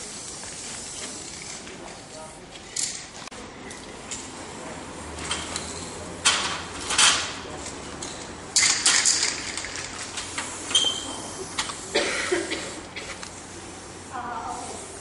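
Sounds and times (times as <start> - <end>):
spray paint can hissing: 0.0 - 2.1, 5.1 - 15.0.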